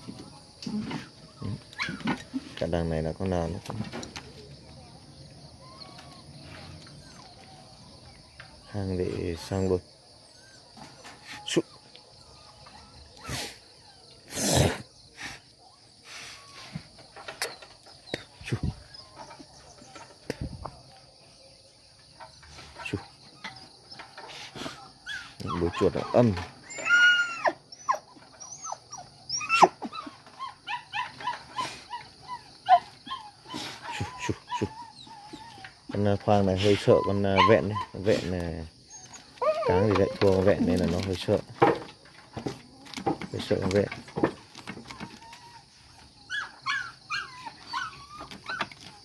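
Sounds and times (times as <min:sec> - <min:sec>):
dogs whining: 0:00.0 - 0:02.6, 0:05.5 - 0:21.1, 0:21.9 - 0:49.0
insects trilling: 0:00.0 - 0:49.0
dog yelping: 0:00.7 - 0:02.4, 0:23.3 - 0:36.0, 0:36.6 - 0:38.1, 0:38.9 - 0:40.9, 0:44.2 - 0:49.0.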